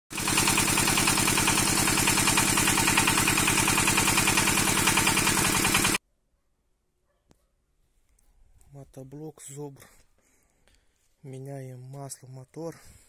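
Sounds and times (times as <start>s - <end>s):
diesel engine knocking: 0.1s - 6.0s.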